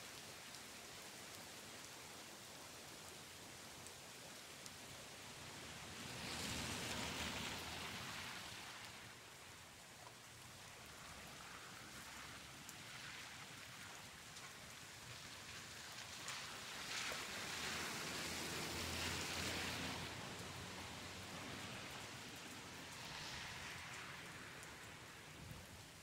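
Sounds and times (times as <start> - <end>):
steady rain hissing: 0.0 - 26.0
raindrop ticks: 17.5 - 26.0.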